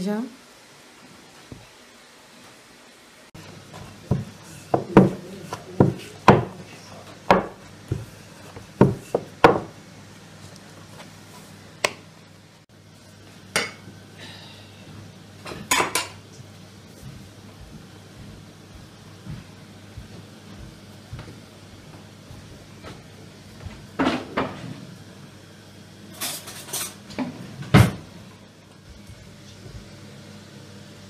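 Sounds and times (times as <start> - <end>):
kitchen items knocking on wood: 4.0 - 5.2, 5.8 - 6.6, 7.3 - 8.1, 8.8 - 9.7.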